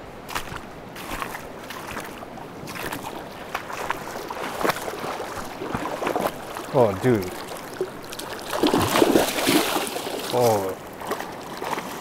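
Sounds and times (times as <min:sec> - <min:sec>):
river water rushing: 0:00.1 - 0:12.0
splashing of wading in river: 0:00.3 - 0:12.0.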